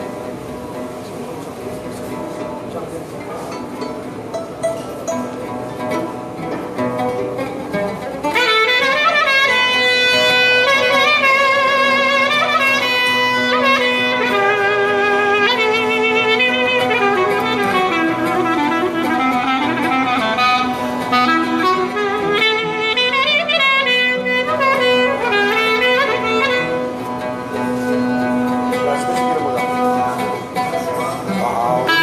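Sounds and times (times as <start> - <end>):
oud: 0.0 - 32.0
violin: 0.0 - 32.0
clarinet melody: 5.0 - 32.0.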